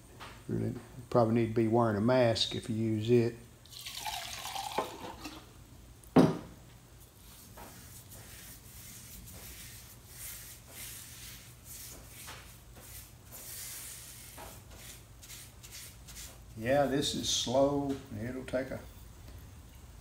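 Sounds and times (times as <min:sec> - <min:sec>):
tin can knocking on wood: 0:06.2 - 0:06.5
brush strokes on wood: 0:07.0 - 0:19.1.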